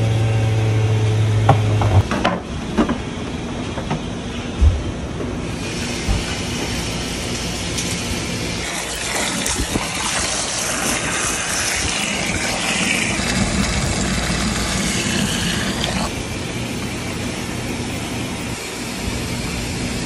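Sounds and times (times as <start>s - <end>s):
steady low hum: 0.0s - 20.0s
hose water gushing into bucket: 8.6s - 16.1s.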